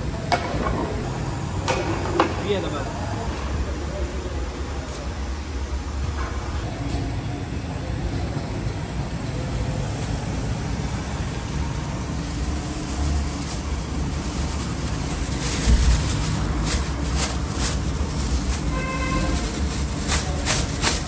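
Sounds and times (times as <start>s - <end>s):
gas burner roaring: 0.0s - 21.0s
plastic bag crinkling: 12.0s - 21.0s.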